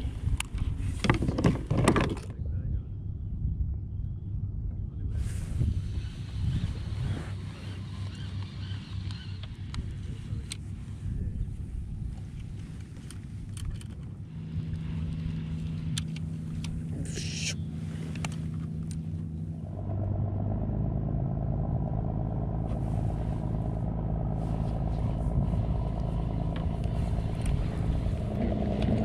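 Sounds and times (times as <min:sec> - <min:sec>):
low rumble: 0:02.2 - 0:29.0.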